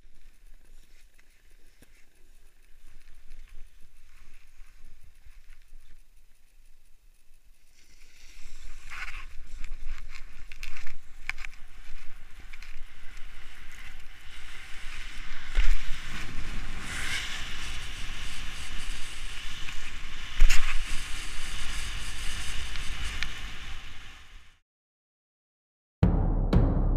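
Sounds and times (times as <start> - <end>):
skis scraping snow: 0.1 - 24.4
heavy thumps: 26.0 - 26.9.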